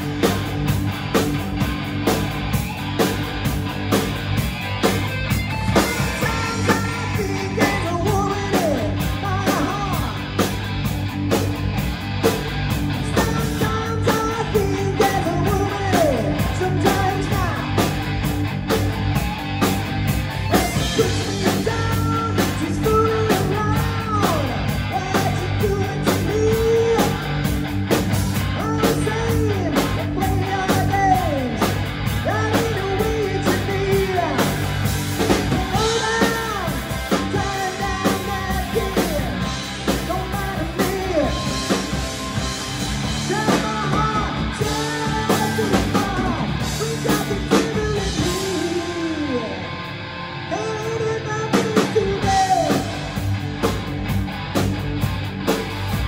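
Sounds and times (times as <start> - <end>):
drum kit: 0.0 - 49.8, 50.8 - 56.0
bass guitar: 0.0 - 56.0
electric guitar: 0.0 - 56.0
man singing: 5.7 - 10.4, 12.9 - 17.8, 20.5 - 27.4, 28.5 - 34.6, 35.3 - 41.9, 43.0 - 49.7, 50.5 - 53.2.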